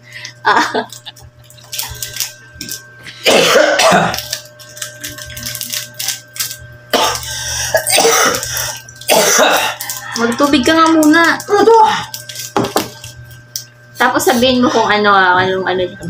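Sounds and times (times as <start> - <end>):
man coughing hard: 3.2 - 4.2, 6.9 - 9.8.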